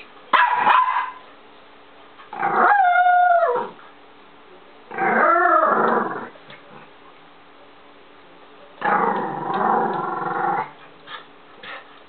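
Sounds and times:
dog howling: 2.4s - 3.8s.

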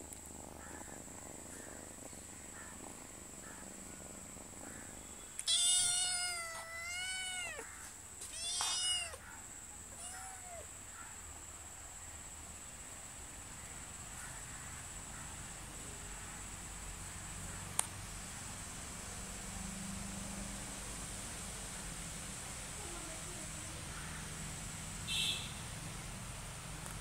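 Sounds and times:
cat meowing: 5.4s - 7.7s, 8.3s - 9.2s, 9.9s - 10.7s.

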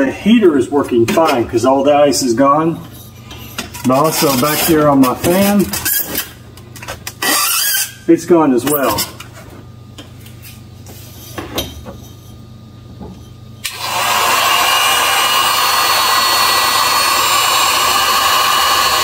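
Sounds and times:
heat gun blowing whine: 13.6s - 19.0s.

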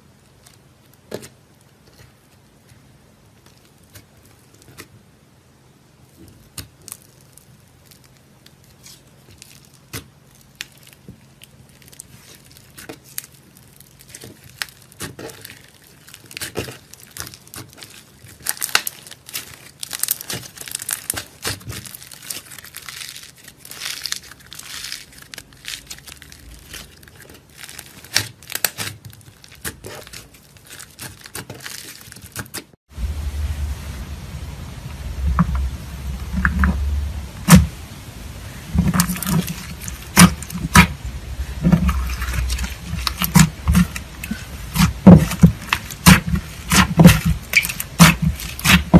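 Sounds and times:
slime squishing and crackling: 0.1s - 5.0s, 6.0s - 48.9s
low hum: 32.9s - 45.7s.

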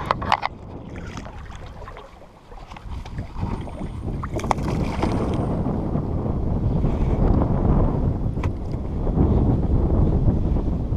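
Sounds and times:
water slapping kayak hull: 0.0s - 6.7s
wind buffeting microphone: 0.0s - 10.9s.

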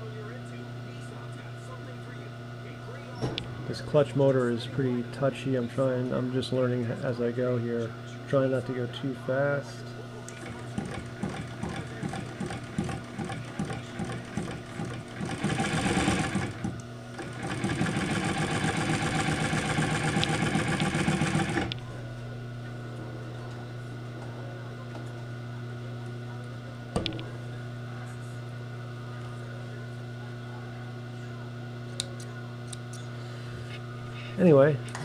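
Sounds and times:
motor humming: 0.0s - 35.0s
sewing machine stitching: 10.4s - 21.8s.

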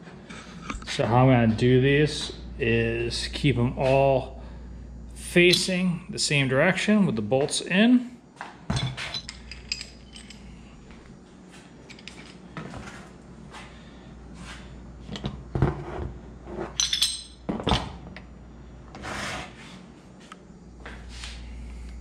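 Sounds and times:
metal parts clinking and knocking: 8.7s - 10.6s, 11.8s - 12.5s, 16.7s - 17.8s.

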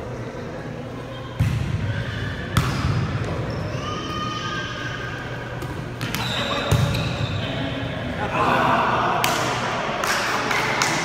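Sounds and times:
volleyball slaps echoing in gym: 1.3s - 3.9s, 5.5s - 7.6s, 9.0s - 11.0s.

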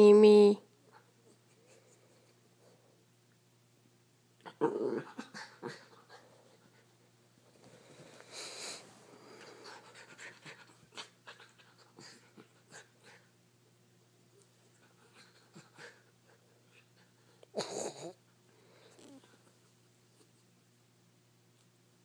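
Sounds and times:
dog panting and snuffling: 7.8s - 13.3s.

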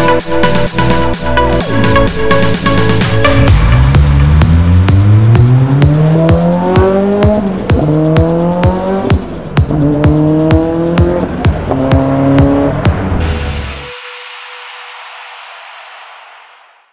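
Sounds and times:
music with steady beat: 0.0s - 16.9s
sports car engine accelerating: 1.7s - 13.7s.

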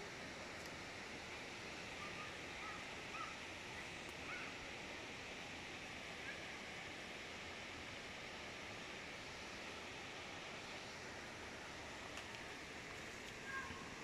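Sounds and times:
outdoor hiss: 0.0s - 14.0s
faint bird chirps: 2.0s - 4.6s, 13.4s - 13.9s.

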